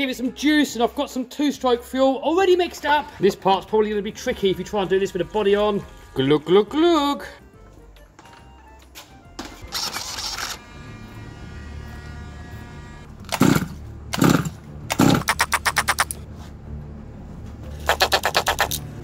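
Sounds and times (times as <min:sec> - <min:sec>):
pull starter pulls: 0:09.4 - 0:10.6, 0:13.2 - 0:16.2
two-stroke engine sputtering: 0:13.2 - 0:16.2.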